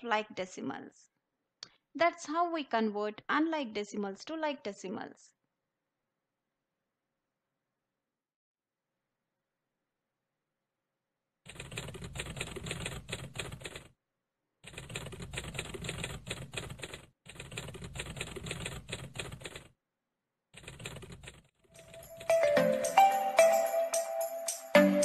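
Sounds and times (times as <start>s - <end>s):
typewriter key clatter: 11.5s - 13.9s, 14.7s - 19.7s, 20.6s - 22.4s.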